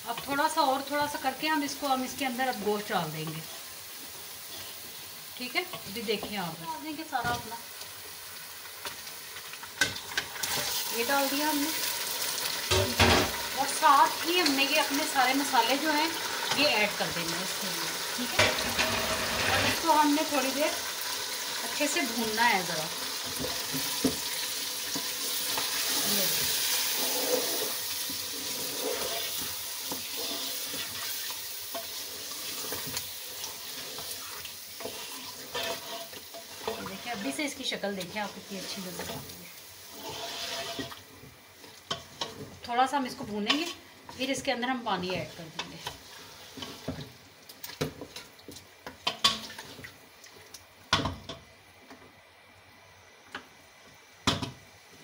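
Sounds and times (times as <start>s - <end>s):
meat frying in hot oil: 0.0s - 55.0s
spatula knocking and scraping pot: 18.3s - 19.9s, 33.6s - 37.4s, 40.0s - 41.0s.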